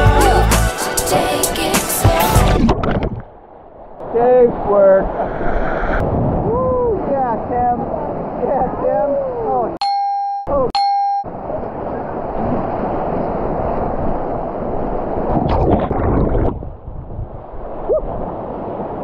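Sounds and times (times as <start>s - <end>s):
electronic beep: 9.8s - 11.3s.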